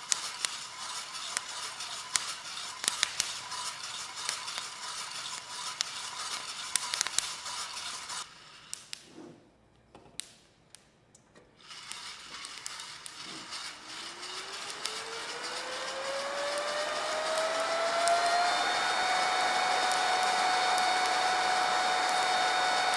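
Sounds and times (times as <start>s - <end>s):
coffee beans rattling in drum: 0.0s - 8.3s, 11.6s - 18.5s
electric fan whine: 11.6s - 22.9s.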